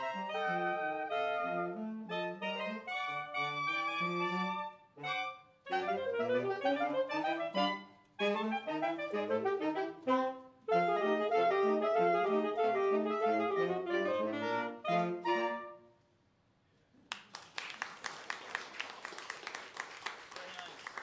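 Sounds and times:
saxophone quartet playing ragtime: 0.0s - 16.0s
audience applauding: 17.0s - 21.0s.

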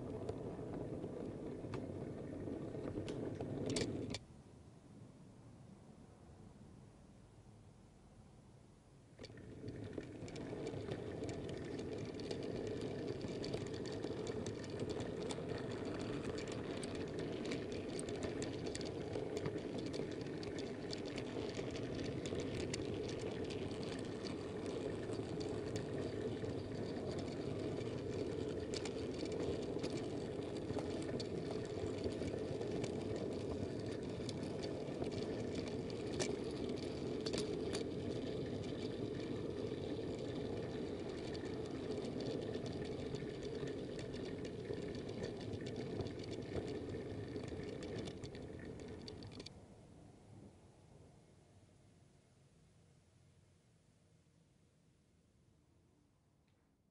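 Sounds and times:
model train rolling on track: 0.0s - 4.2s, 9.2s - 49.6s
small clicks and rattles: 0.0s - 4.2s, 9.2s - 49.6s.

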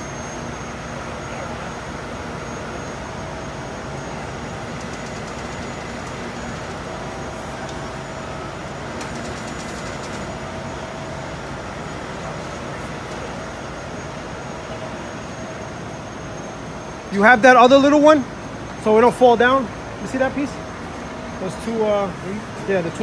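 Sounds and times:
faint whine: 0.0s - 23.0s
truck diesel engine running: 0.0s - 23.0s.

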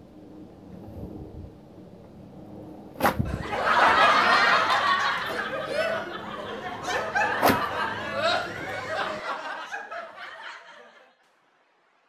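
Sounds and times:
sharp thump: 3.0s - 3.4s, 7.4s - 7.7s
crowd laughing: 3.2s - 11.4s.

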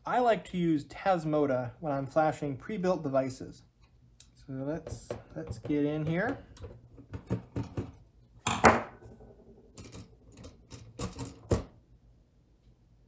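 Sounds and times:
plastic clacks and knocks: 4.9s - 8.9s.

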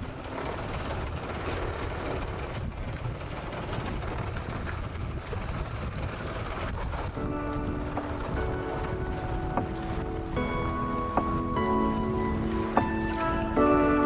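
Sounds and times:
rumbling rush on sailboat: 0.0s - 14.0s.

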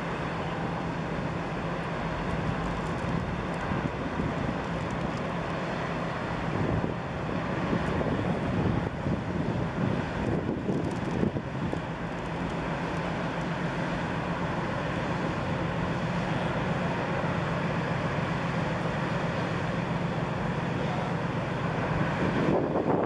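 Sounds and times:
ship engines droning: 0.0s - 23.0s
wind noise: 6.5s - 11.9s, 22.0s - 23.0s.

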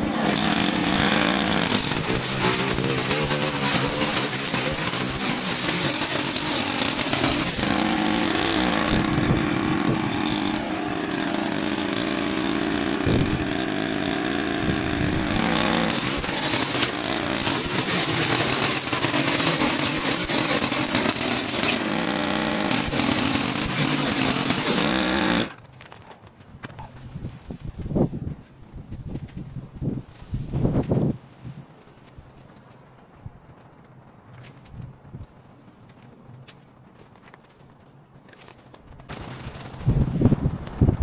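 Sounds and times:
small engine running: 0.0s - 25.6s.

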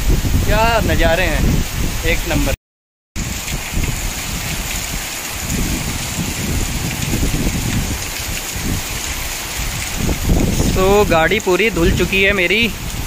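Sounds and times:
wind on microphone: 0.0s - 2.6s, 3.2s - 13.0s
waterfall spray rushing: 3.2s - 13.0s.

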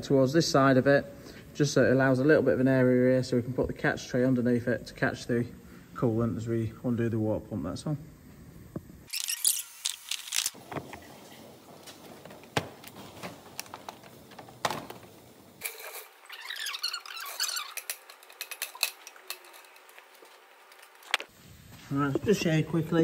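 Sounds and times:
tools and parts clicking and knocking: 17.0s - 21.3s.

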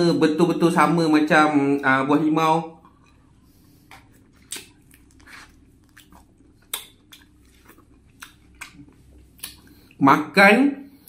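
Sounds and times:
wet chewing smacks: 2.8s - 10.0s.

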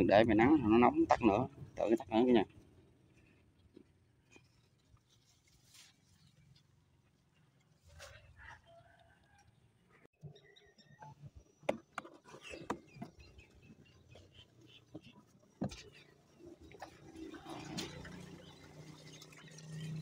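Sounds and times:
light water sounds: 15.0s - 20.0s.

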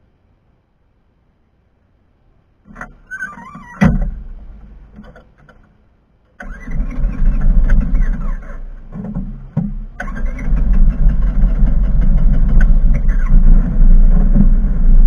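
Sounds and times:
car engine starting and running: 6.3s - 15.0s.

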